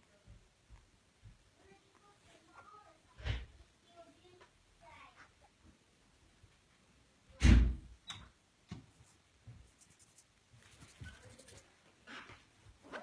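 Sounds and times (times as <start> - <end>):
faint rustles: 8.9 - 13.0.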